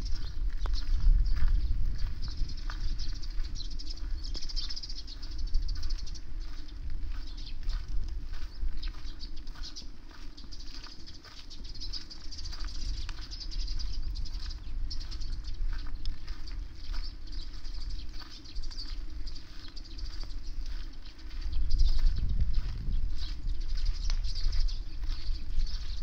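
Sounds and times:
wind buffeting microphone: 0:00.0 - 0:26.0.

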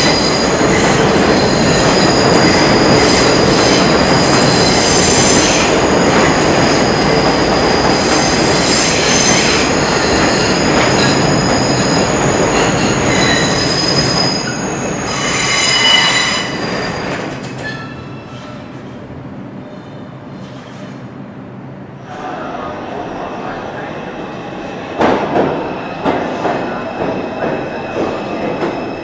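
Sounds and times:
train wheels on rail: 0:00.0 - 0:19.1, 0:19.7 - 0:21.2, 0:24.8 - 0:29.0
wheels and brakes squealing: 0:12.9 - 0:18.6.

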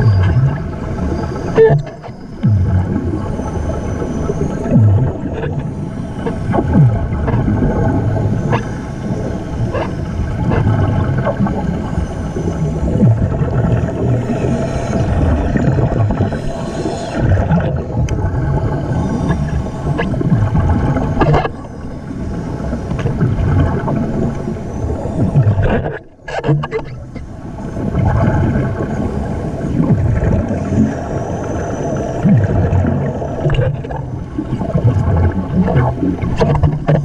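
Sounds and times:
faint steady hum: 0:00.0 - 0:37.0
underwater rumble and gurgling: 0:00.0 - 0:37.0.

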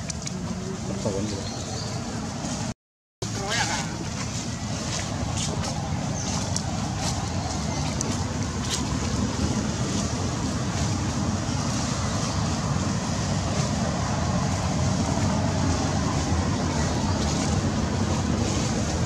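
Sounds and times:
wind buffeting microphone: 0:04.1 - 0:19.0.

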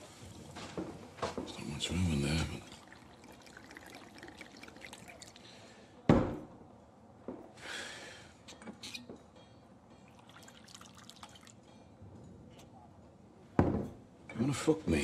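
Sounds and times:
small drips: 0:01.5 - 0:05.8, 0:10.0 - 0:11.9
liquid pouring into a glass: 0:01.8 - 0:05.8, 0:10.1 - 0:11.7
glass clinking: 0:02.6 - 0:05.4, 0:09.2 - 0:12.4.

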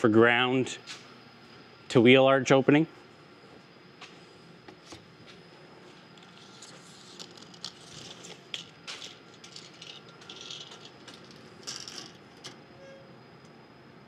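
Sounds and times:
footsteps on concrete floor: 0:03.5 - 0:04.2
steel tape measure rattling: 0:06.2 - 0:12.6.

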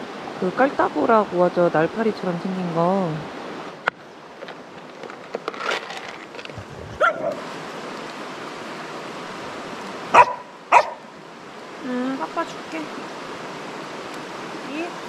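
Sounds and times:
mountain stream rushing: 0:00.0 - 0:15.0
dog barking: 0:07.0 - 0:07.4, 0:10.1 - 0:11.1.

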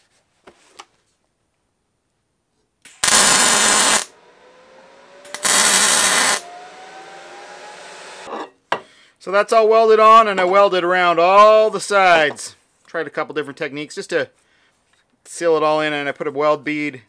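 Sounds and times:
welding arc buzzing: 0:02.9 - 0:08.3.

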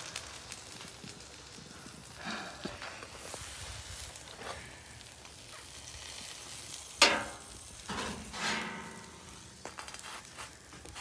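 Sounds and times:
sandwich sizzling on griddle: 0:00.0 - 0:11.0
metal scraping on griddle: 0:05.4 - 0:11.0
metal clank: 0:07.0 - 0:09.4.

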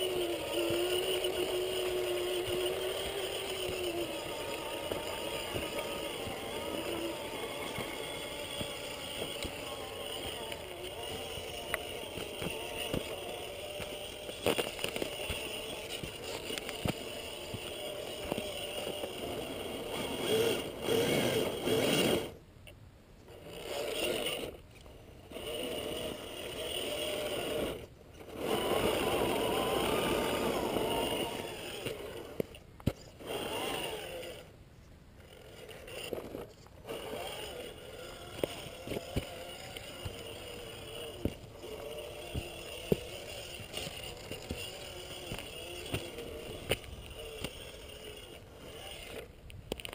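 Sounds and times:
electric motor whining: 0:00.0 - 0:22.4, 0:23.3 - 0:34.6, 0:35.2 - 0:49.9.

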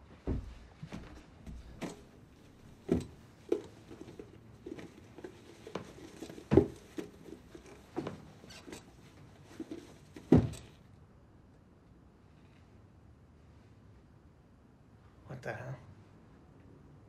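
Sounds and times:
boots knocking and scuffing: 0:00.0 - 0:08.9, 0:09.5 - 0:10.8.

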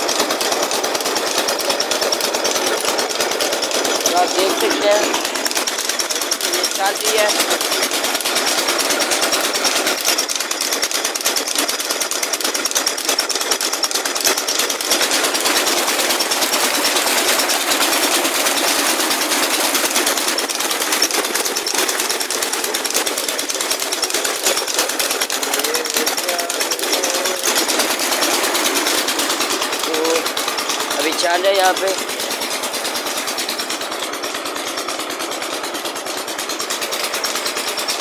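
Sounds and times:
pump engine knocking: 0:00.0 - 0:38.0
water gushing from pipe: 0:00.0 - 0:38.0.

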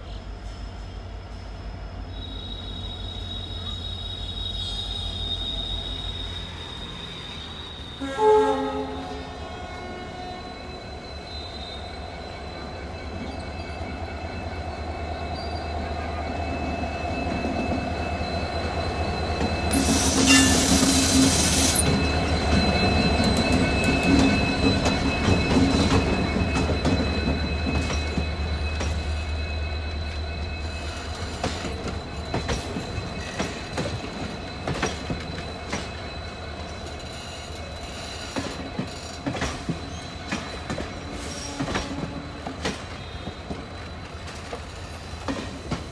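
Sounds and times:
diesel locomotive engine: 0:00.0 - 0:45.9
train wheels clicking over rail joints: 0:31.0 - 0:36.1, 0:36.8 - 0:45.9.

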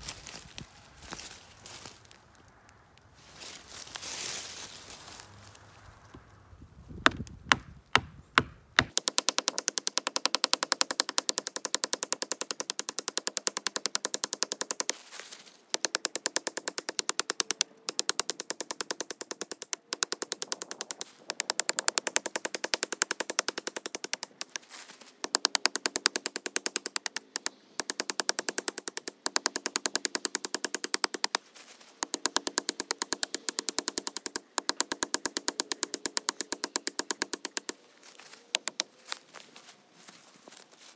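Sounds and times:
axe chopping tree trunk: 0:07.0 - 0:15.0, 0:32.0 - 0:37.8.

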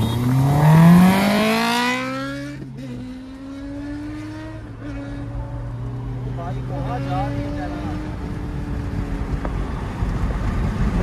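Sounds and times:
car engine droning: 0:00.0 - 0:11.0
motorcycle engine accelerating: 0:00.0 - 0:11.0.

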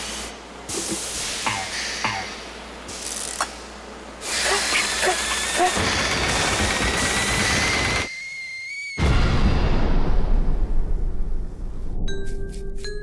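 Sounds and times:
cartoon steam hissing: 0:04.2 - 0:09.1
rising whistle: 0:07.4 - 0:09.4
low rumble: 0:09.3 - 0:12.1.

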